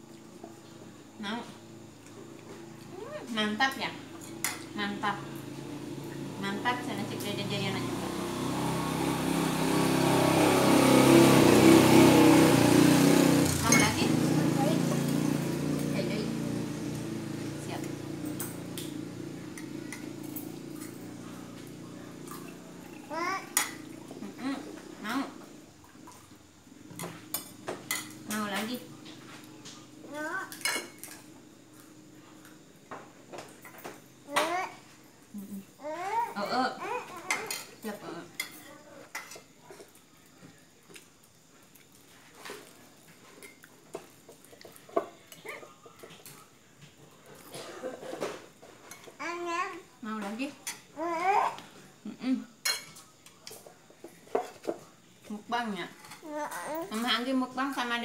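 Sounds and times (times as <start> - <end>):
metal spoons clinking on bowls: 13.6 - 14.0, 27.0 - 28.8, 30.5 - 31.2, 37.3 - 39.5, 52.6 - 53.7.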